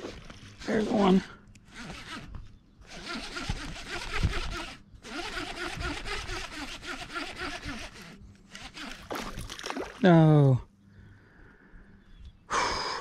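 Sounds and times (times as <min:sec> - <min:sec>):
fishing reel ratchet rasping: 0:02.9 - 0:09.1.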